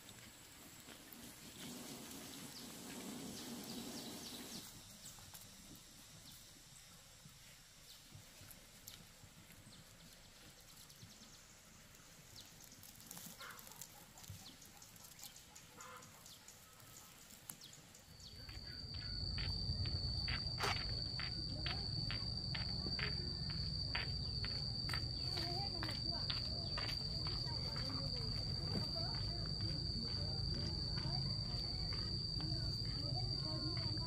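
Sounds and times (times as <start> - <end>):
high insect trill: 0.0 - 34.0
fast regular ticks: 11.8 - 34.0
low rumble: 18.3 - 34.0.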